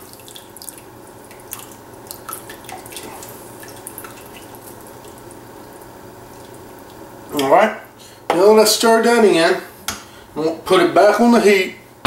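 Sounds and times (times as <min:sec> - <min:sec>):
liquid trickling: 0:00.0 - 0:07.4
steady low hum: 0:00.0 - 0:12.0.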